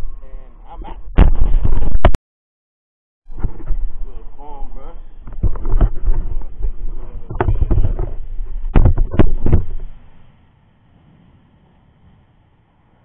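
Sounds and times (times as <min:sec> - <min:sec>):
faint steady background noise: 0:03.3 - 0:13.0
camera handling knocks and rumbling: 0:05.2 - 0:10.0.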